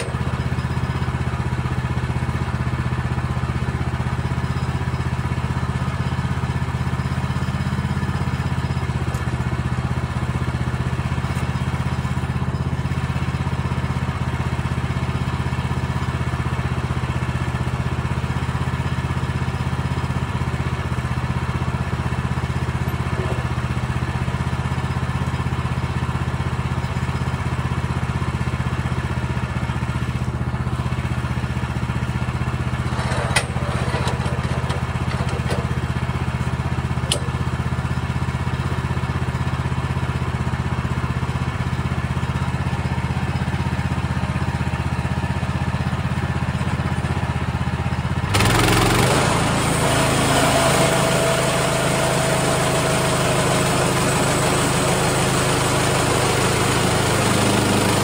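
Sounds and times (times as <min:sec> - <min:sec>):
small gasoline engine running: 0:00.0 - 0:58.0
metallic clatter: 0:32.8 - 0:35.9.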